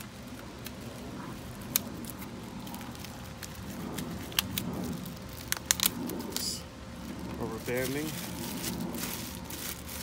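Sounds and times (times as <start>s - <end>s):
packaging rustling: 0.0s - 10.0s.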